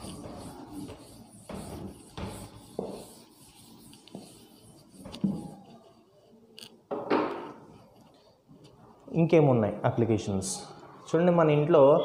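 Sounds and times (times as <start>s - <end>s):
duster rubbing on chalkboard: 0.0s - 6.0s.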